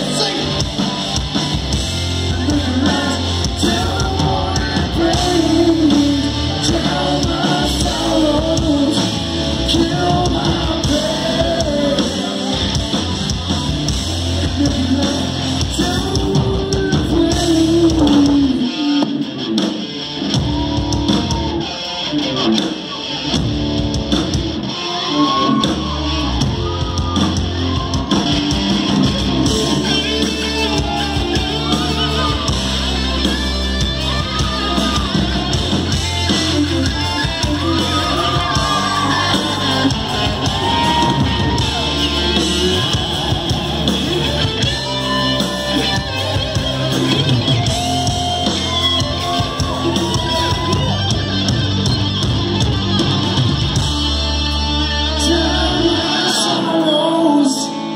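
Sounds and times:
person singing lead vocal: 0.0s - 1.2s, 1.9s - 19.7s, 34.0s - 51.0s, 53.9s - 57.9s
live hard rock band playing: 0.0s - 57.9s.

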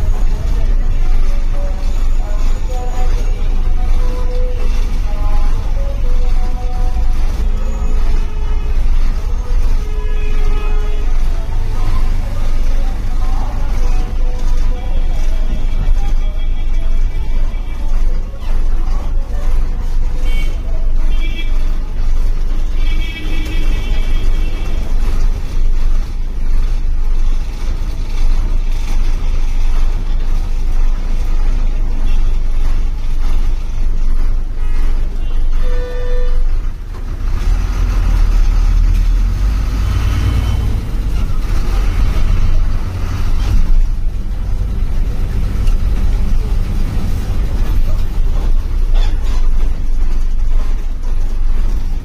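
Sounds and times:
bus engine rumble: 0.0s - 52.0s
road noise: 0.0s - 52.0s.

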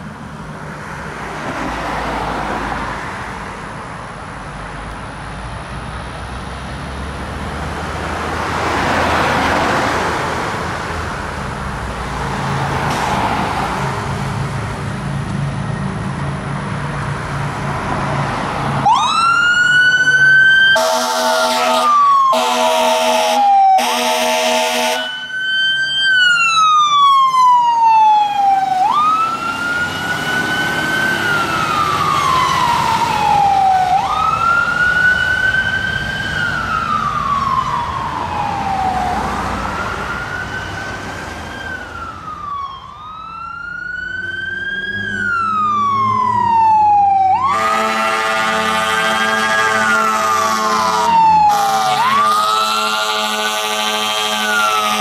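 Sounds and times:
fire truck siren wailing: 18.2s - 55.0s
air horn blasts: 20.8s - 25.3s, 47.4s - 55.0s.

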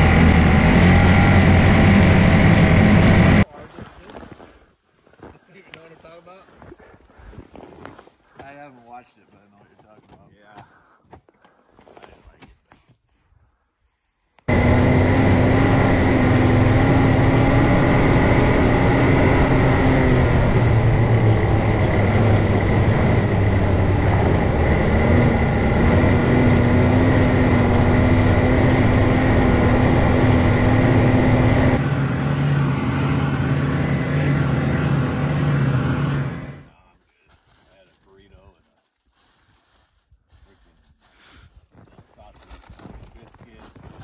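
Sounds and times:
snowmobile engine running: 0.0s - 3.4s, 14.5s - 36.7s
track noise: 0.0s - 3.5s, 14.5s - 36.7s.

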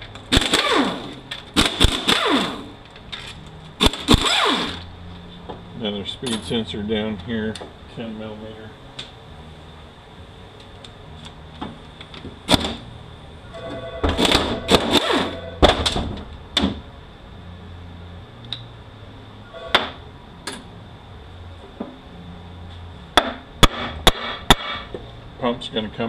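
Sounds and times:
air ratchet running: 3.8s - 4.9s.

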